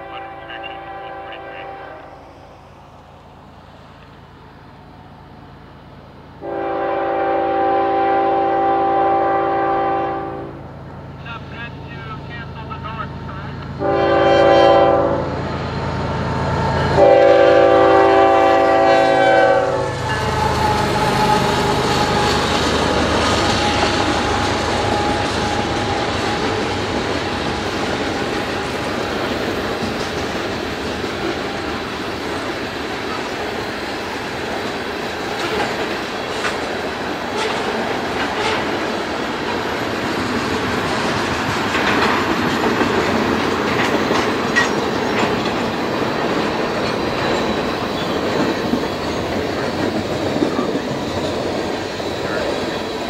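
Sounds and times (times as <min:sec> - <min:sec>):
locomotive air horn blasts: 0:00.0 - 0:02.2, 0:06.4 - 0:10.6, 0:13.8 - 0:15.4, 0:16.9 - 0:22.5, 0:38.4 - 0:38.8
train wheels rumbling on rails: 0:00.0 - 0:53.0
wheels clicking over rail joints: 0:20.1 - 0:52.0.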